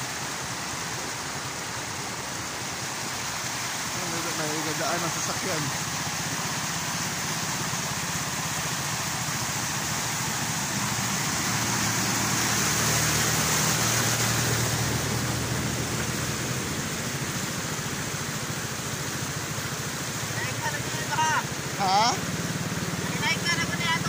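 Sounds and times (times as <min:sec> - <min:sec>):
rain hiss: 0:00.0 - 0:24.0
rushing water: 0:00.0 - 0:24.0
truck engine driving past: 0:05.3 - 0:18.1.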